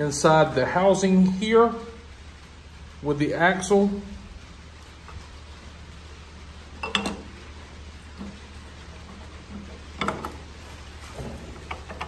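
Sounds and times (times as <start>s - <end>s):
low steady hum: 0.0s - 12.0s
metal clinks and knocks: 6.8s - 7.3s.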